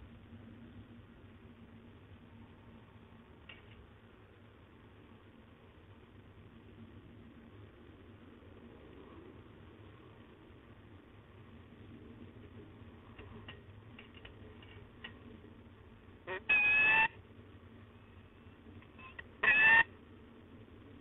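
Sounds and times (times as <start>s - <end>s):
falcon calling: 16.3s - 17.2s, 19.0s - 19.9s.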